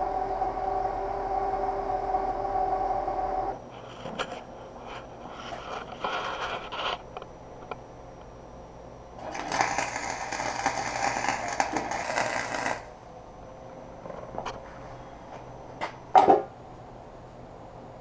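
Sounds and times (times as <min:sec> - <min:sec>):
scraping and clatter: 0:09.2 - 0:12.9
arc welder crackling: 0:09.2 - 0:13.0.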